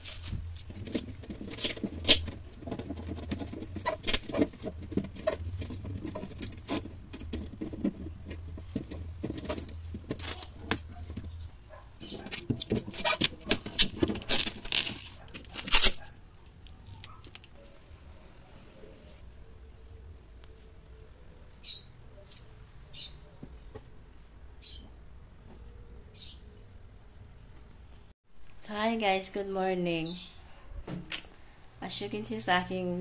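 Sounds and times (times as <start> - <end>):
plastic bin clicking and rattling: 0.2 - 11.4, 12.1 - 15.7.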